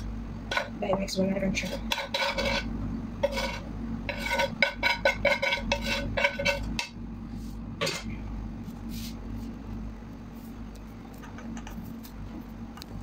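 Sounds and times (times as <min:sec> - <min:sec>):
metal spatula scraping cooking pot: 0:01.5 - 0:07.0.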